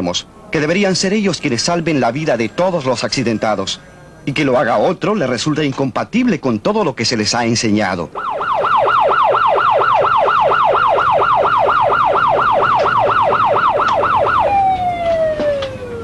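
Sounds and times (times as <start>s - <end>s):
emergency vehicle siren: 8.1s - 16.0s.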